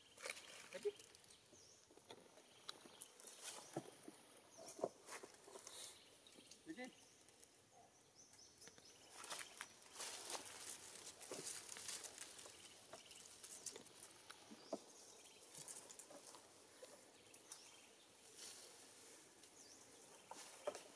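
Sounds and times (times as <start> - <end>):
dry leaves and twigs crackling: 0.0 - 7.6, 8.6 - 20.9
twigs snapping: 9.2 - 14.5.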